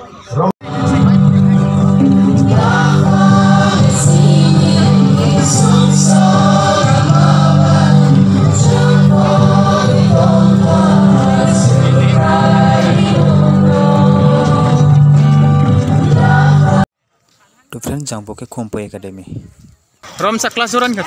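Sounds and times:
choir singing a hymn over loudspeaker: 0.7 - 16.8.

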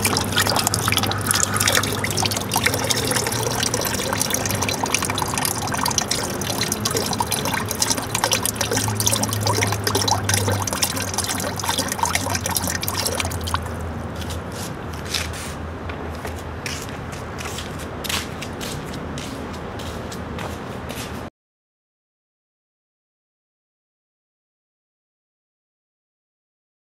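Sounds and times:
liquid splashing into bucket: 0.0 - 13.8
dripping: 0.0 - 13.9.

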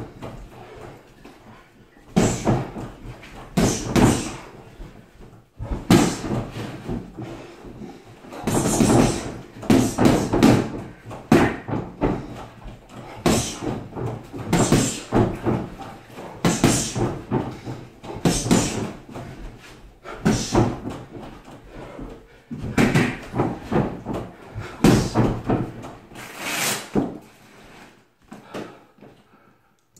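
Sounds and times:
gloves punching a punchbag: 2.1 - 4.5, 5.6 - 7.2, 8.3 - 12.4, 13.1 - 15.8, 16.4 - 19.0, 22.6 - 25.7.

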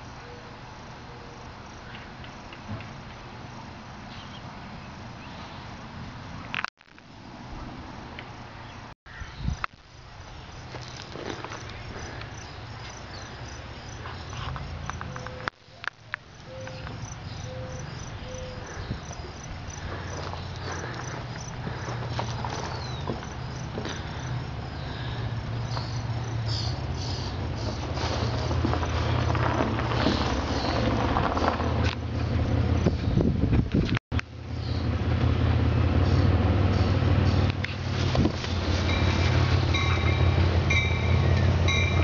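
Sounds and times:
insects chirping: 0.0 - 33.3, 34.4 - 42.0
diesel locomotive rumble: 18.2 - 42.0.

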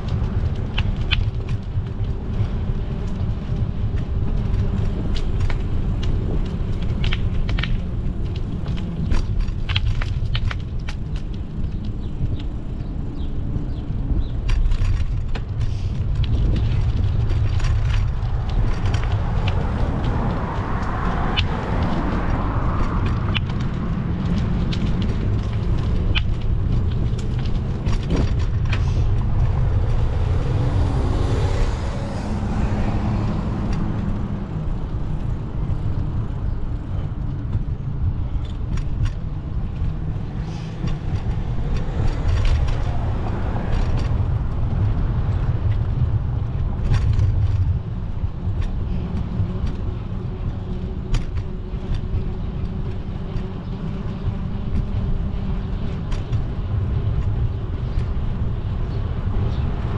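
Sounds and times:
small clicks: 0.0 - 29.7
cars passing: 0.0 - 59.9
steady low rumble: 0.0 - 59.9.

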